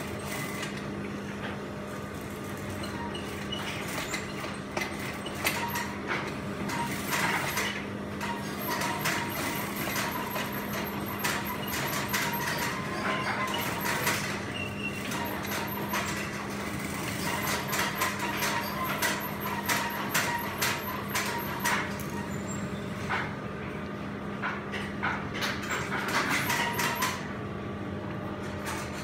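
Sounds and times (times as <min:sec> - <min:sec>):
machines and fabric clicking: 0:00.0 - 0:27.4, 0:28.0 - 0:29.0
sewing machine motor hum: 0:01.9 - 0:23.0
sewing machine stitching: 0:06.7 - 0:22.4, 0:25.6 - 0:27.3.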